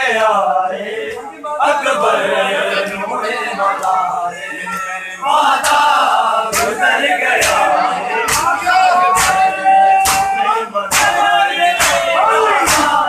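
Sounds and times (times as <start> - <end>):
men chanting a mourning lament: 0.0 - 13.0
hands slapping bare chests: 6.5 - 6.8, 7.4 - 11.2, 11.8 - 13.0.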